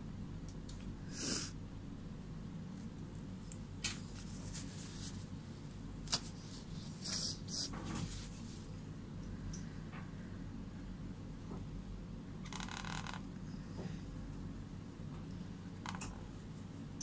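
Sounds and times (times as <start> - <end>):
low room hum: 0.0 - 17.0
soft rustles: 3.9 - 5.4, 6.1 - 8.8.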